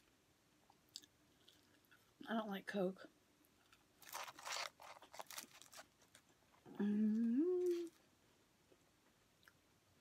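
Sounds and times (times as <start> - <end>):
paper wrapper crinkling: 3.7 - 6.6
woman humming while chewing: 6.7 - 8.0.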